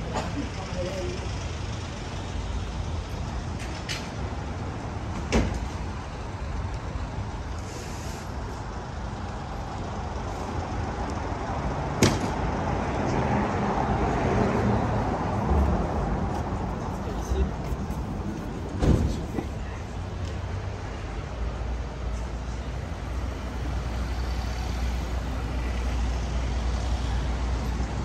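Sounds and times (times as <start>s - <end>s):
street traffic rumble: 0.0s - 28.0s
voices: 14.5s - 20.4s.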